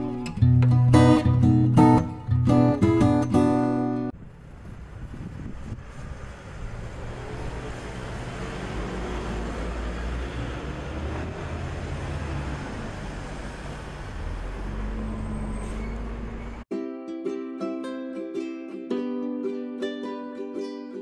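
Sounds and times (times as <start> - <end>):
road noise: 4.1 - 16.7
vehicle engine rumbling: 4.1 - 16.7.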